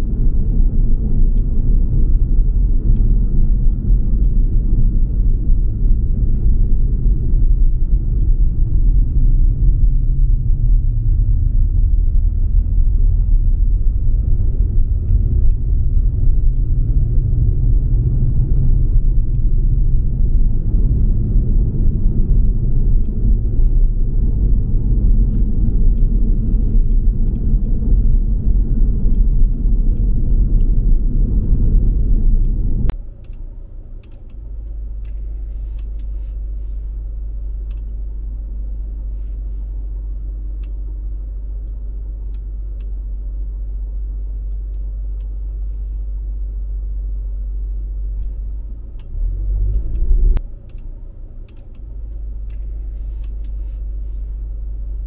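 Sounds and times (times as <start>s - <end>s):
low hum: 0.0s - 55.0s
road noise rumble: 0.0s - 55.0s
click: 19.2s - 19.4s, 32.4s - 36.2s, 37.6s - 38.0s, 41.6s - 43.0s, 44.4s - 45.4s, 48.2s - 53.6s.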